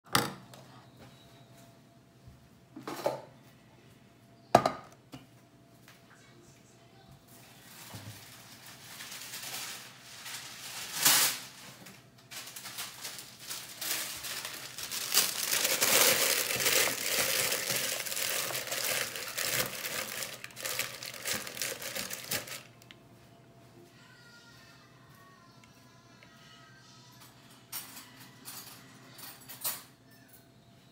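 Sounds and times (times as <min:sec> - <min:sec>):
parchment paper crinkling: 0:07.4 - 0:22.9
loud sharp paper crackle: 0:07.5 - 0:22.8.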